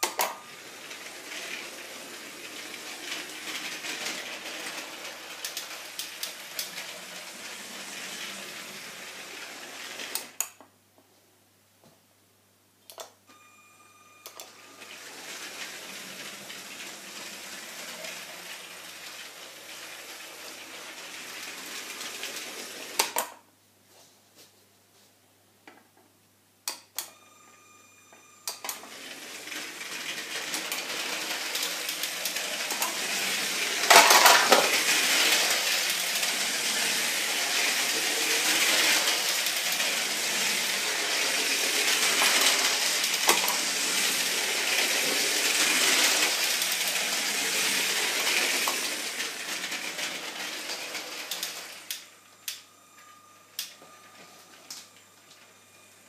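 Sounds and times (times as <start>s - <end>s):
toy train rattling on track: 0.0s - 10.4s, 14.3s - 23.3s, 28.5s - 52.6s.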